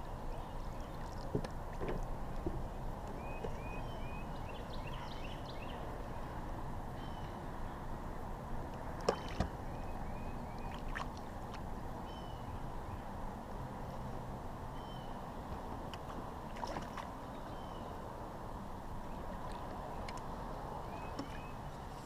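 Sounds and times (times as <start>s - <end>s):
steady water noise: 0.0s - 22.0s
bird chirping: 3.2s - 5.9s.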